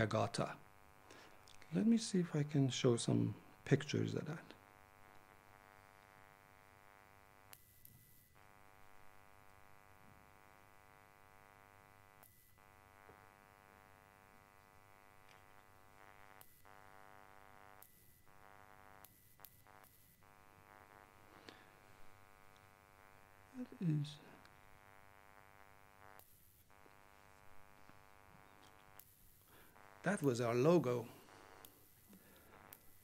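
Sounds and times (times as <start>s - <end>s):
faint electrical buzz: 0.0s - 33.0s.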